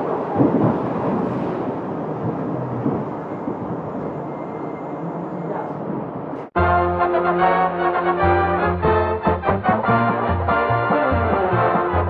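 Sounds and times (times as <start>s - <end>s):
subway car rumbling and rattling: 0.0s - 6.6s.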